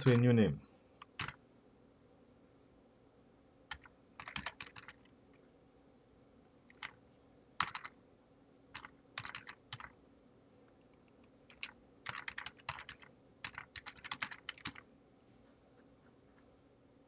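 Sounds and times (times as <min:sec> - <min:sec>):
typing on computer keyboard: 0:01.0 - 0:01.4, 0:03.7 - 0:05.1, 0:06.7 - 0:07.0, 0:07.6 - 0:08.0, 0:08.7 - 0:10.0, 0:11.5 - 0:14.8.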